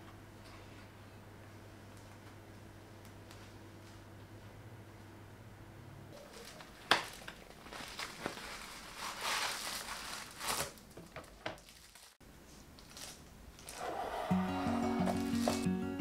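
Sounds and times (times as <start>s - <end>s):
plastic wrapping rustling: 6.2s - 12.2s, 12.8s - 15.7s
cardboard box being opened: 13.7s - 15.7s.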